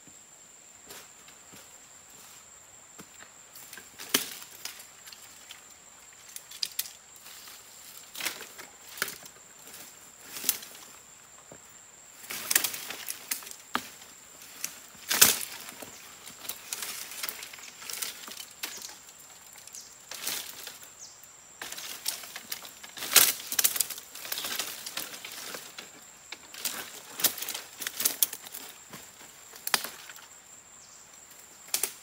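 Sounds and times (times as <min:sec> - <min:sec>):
high insect tone: 0:00.0 - 0:32.0
sticks snapping and crackling: 0:03.7 - 0:05.6, 0:06.3 - 0:07.0, 0:12.3 - 0:20.8, 0:21.6 - 0:29.0, 0:29.6 - 0:30.2, 0:31.7 - 0:32.0
rustling leaf litter: 0:12.2 - 0:20.9, 0:21.6 - 0:30.2.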